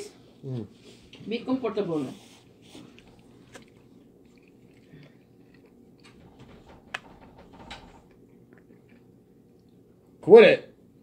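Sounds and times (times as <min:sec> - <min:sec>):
person chewing food: 0:02.5 - 0:06.2, 0:08.1 - 0:09.9.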